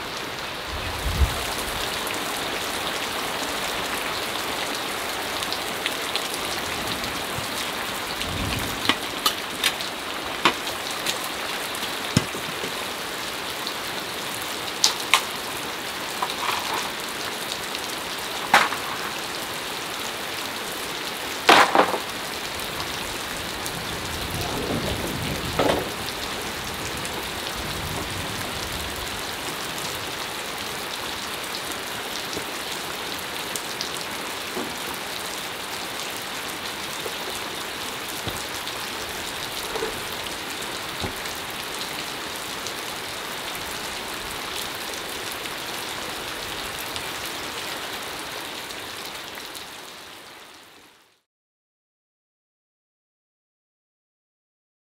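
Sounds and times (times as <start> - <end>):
heavy rain: 0.0 - 51.2
bamboo poles knocking: 12.2 - 12.8.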